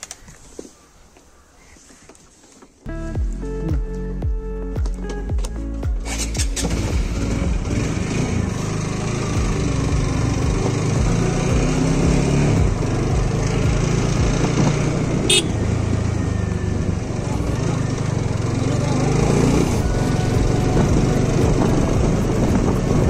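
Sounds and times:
road and wind noise: 0:00.0 - 0:23.0
motorcycle engine running: 0:03.2 - 0:23.0.

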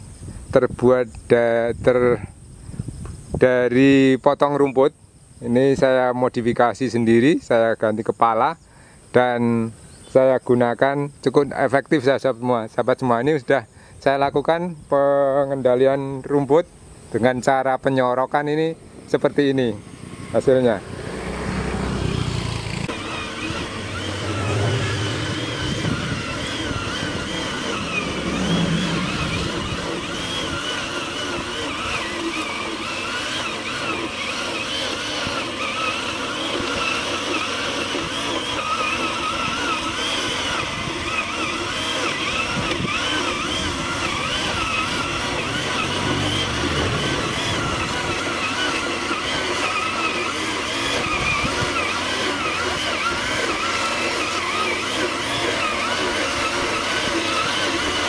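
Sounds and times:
brush cutter engine running: 0:15.2 - 0:58.0.

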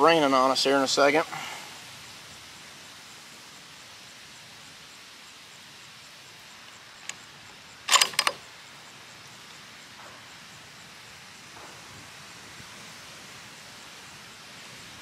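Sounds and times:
rifle bolt metallic clicks: 0:07.0 - 0:07.2, 0:07.9 - 0:08.4.

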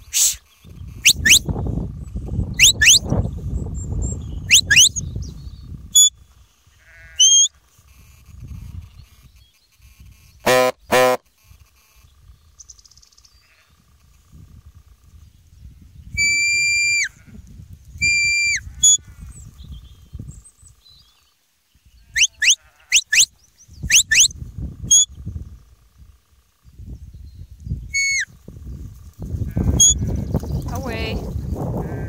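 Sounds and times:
sheepdog whistle: 0:00.1 - 0:00.4, 0:01.0 - 0:01.5, 0:02.6 - 0:03.0, 0:04.5 - 0:05.0, 0:07.2 - 0:07.5, 0:16.2 - 0:17.1, 0:18.0 - 0:19.0, 0:22.2 - 0:23.3, 0:23.9 - 0:24.3, 0:27.9 - 0:28.3
sheep bleating: 0:06.7 - 0:07.4, 0:22.0 - 0:23.1, 0:31.8 - 0:32.0.

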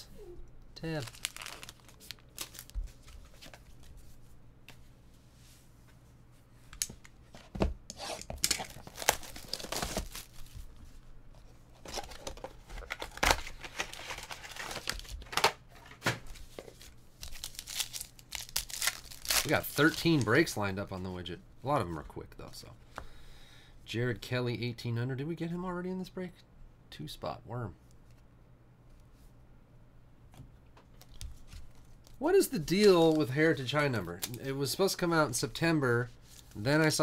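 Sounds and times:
card pack wrappers tearing and crinkling: 0:00.8 - 0:03.6, 0:08.0 - 0:10.6, 0:11.8 - 0:15.6, 0:16.3 - 0:20.5, 0:32.2 - 0:34.5
cards rustling and clicking: 0:00.9 - 0:03.9, 0:11.8 - 0:20.5, 0:30.9 - 0:34.5.

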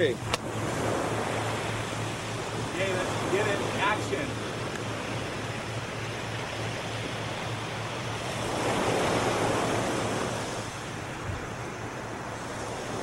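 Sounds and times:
ocean surf washing on shore: 0:00.0 - 0:13.0.

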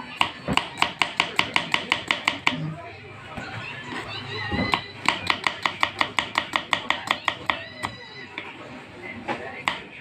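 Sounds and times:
knife chopping on board: 0:04.6 - 0:07.6, 0:09.6 - 0:09.9.

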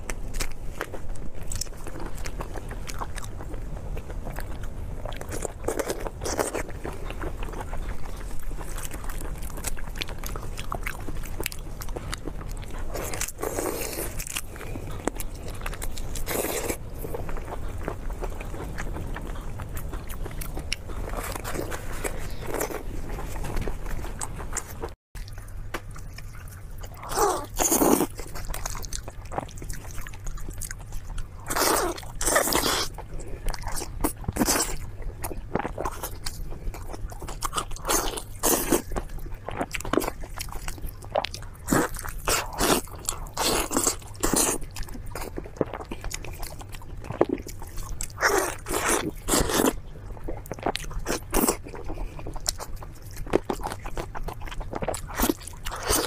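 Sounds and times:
chewing with crunches: 0:00.0 - 0:56.0.

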